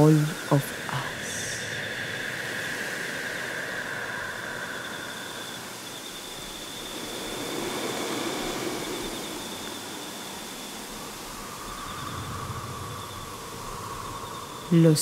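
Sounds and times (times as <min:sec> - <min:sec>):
hiss-like noise: 0:00.0 - 0:15.0
low hum: 0:00.0 - 0:15.0.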